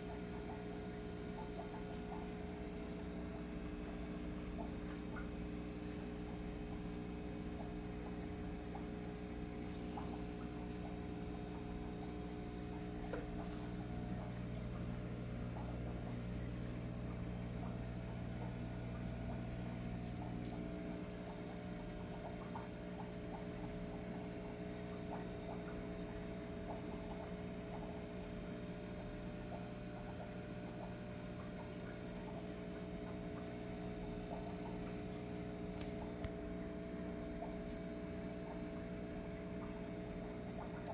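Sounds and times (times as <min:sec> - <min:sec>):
aquarium pump humming: 0:00.0 - 0:40.9.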